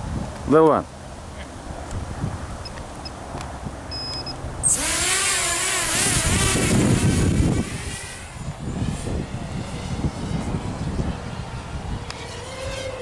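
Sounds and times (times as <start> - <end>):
quadcopter motors whining: 3.8 - 13.0.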